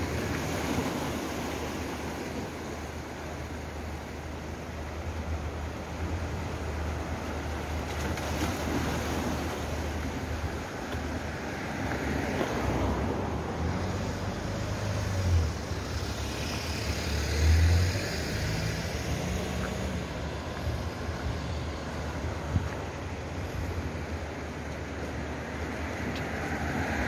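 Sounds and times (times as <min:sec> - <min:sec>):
surf on rocks: 0:00.0 - 0:17.0
vehicle tyre noise passing: 0:08.0 - 0:27.0
wind rumbling on microphone: 0:17.9 - 0:27.0.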